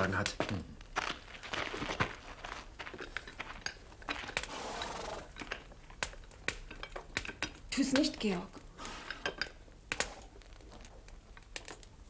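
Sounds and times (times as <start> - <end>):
soft rustle: 0.5 - 5.2
small clicks and clinks: 2.9 - 12.0.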